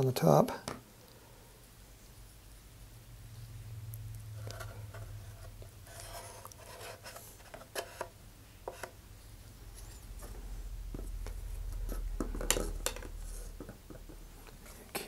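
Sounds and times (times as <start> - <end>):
stick scraping inside cardboard tube: 4.4 - 9.0
low rumble of tube handling: 9.6 - 15.0.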